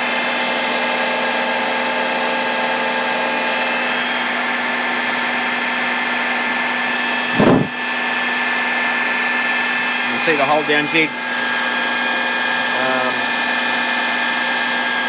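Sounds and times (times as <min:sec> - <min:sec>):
milling machine cutting steel: 0:00.0 - 0:15.0.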